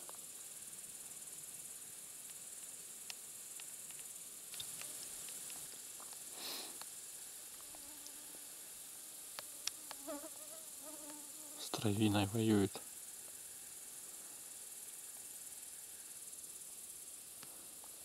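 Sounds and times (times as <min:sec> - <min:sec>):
insects chirring: 0:00.0 - 0:18.0
faint ticks: 0:02.2 - 0:08.2, 0:09.3 - 0:10.2, 0:11.0 - 0:11.2, 0:17.3 - 0:18.0.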